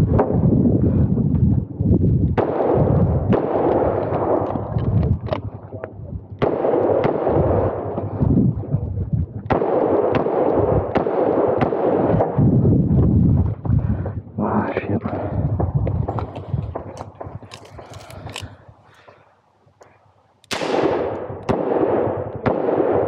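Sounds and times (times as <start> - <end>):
revolver gunshots echoing: 2.4 - 4.7, 6.4 - 8.2, 9.5 - 12.4, 20.5 - 23.0.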